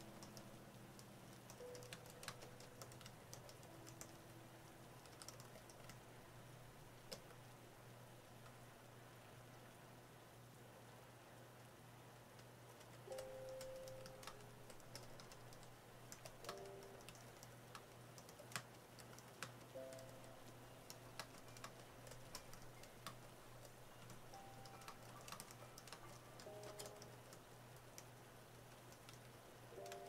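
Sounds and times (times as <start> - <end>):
keyboard typing clicks: 0.0 - 4.2, 5.0 - 6.0, 12.7 - 28.1, 28.7 - 30.0
faint piano music: 0.0 - 8.8, 12.9 - 18.6, 19.3 - 30.0.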